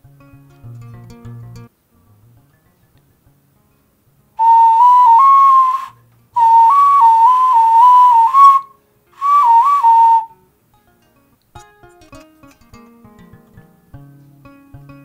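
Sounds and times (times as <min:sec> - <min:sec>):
ocarina whistle phrases: 0:04.4 - 0:10.4.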